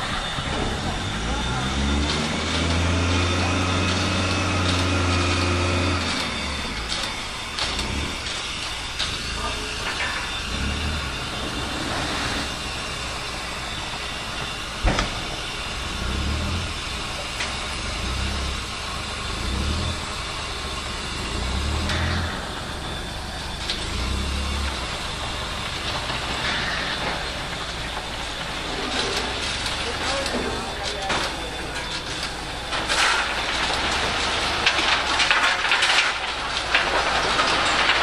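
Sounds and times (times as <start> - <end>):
steam locomotive hissing: 0.0 - 34.6.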